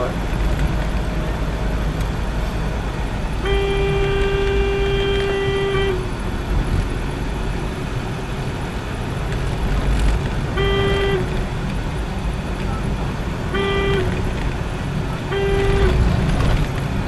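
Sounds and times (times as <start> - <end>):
car engine rumble and road noise: 0.0 - 17.0
car horn blast: 3.4 - 6.1, 10.5 - 11.4, 13.5 - 14.3, 15.3 - 16.1.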